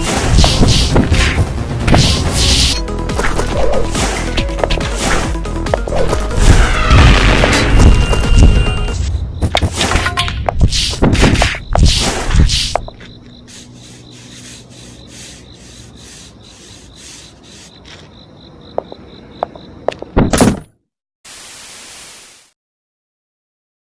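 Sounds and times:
static hiss: 13.5s - 17.7s.

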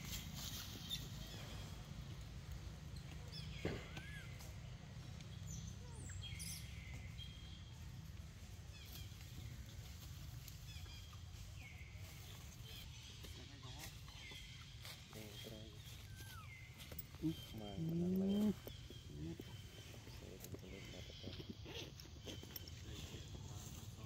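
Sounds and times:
high chirping calls: 12.1s - 23.8s.

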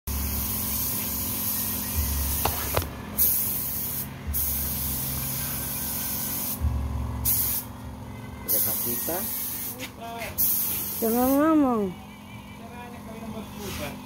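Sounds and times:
paint spray gun hissing: 0.1s - 6.6s, 7.2s - 7.7s, 8.5s - 11.6s.

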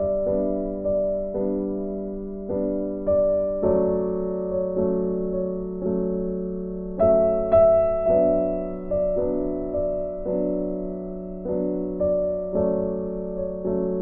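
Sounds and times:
gentle piano melody: 0.0s - 14.0s.

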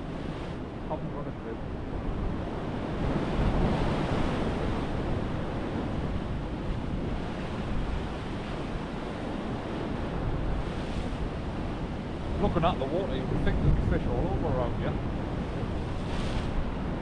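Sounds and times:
waves breaking on rocky shore: 0.0s - 17.0s
wind on microphone: 0.0s - 17.0s.

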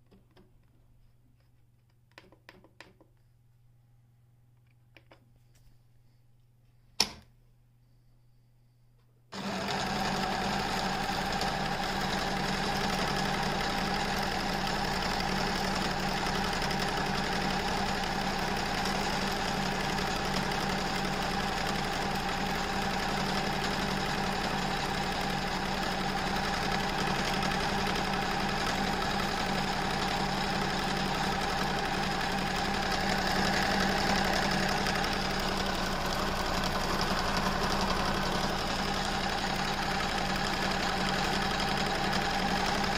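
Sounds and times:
sewing machine running: 9.4s - 42.9s.

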